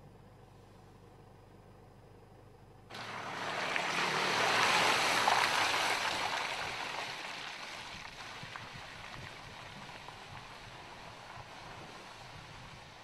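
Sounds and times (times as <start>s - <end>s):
tyres crunching over gravel: 2.9s - 13.0s.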